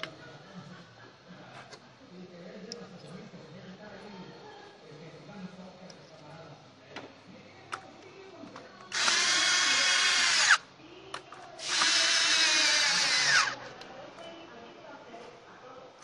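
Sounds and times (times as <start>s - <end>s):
power drill whining: 8.9s - 10.6s, 11.6s - 13.6s.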